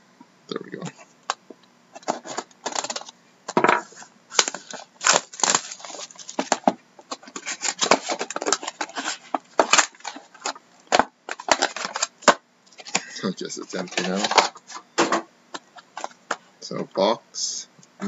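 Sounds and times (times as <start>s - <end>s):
plastic shrink wrap crinkling: 2.0s - 3.1s, 3.8s - 14.8s
cardboard rustling and scraping: 2.0s - 13.0s, 13.6s - 14.9s.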